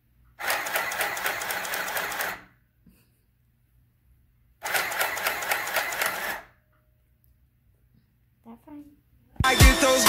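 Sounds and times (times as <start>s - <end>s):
sewing machine stitching: 0.4s - 2.5s, 4.6s - 6.5s.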